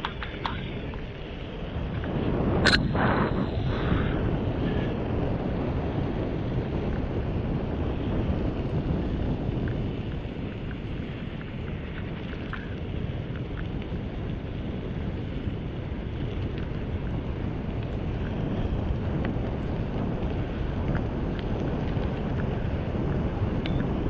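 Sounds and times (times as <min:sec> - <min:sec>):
light ticks: 0:00.0 - 0:01.3, 0:16.2 - 0:24.0
wind rushing over microphone: 0:00.0 - 0:24.0
tyre hiss on wet asphalt: 0:02.3 - 0:05.0.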